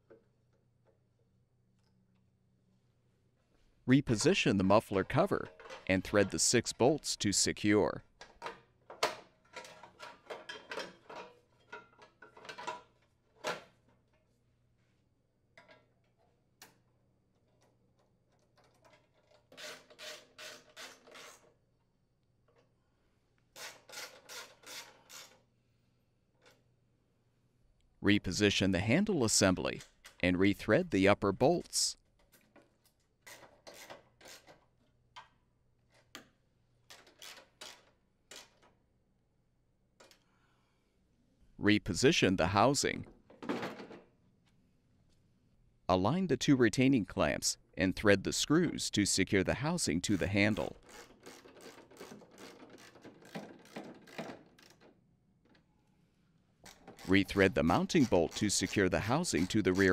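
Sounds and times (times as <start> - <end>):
hand ratchet clicking: 36.9 - 38.7, 50.6 - 54.9, 56.6 - 59.9
ratchet wrench clicking: 50.8 - 54.8.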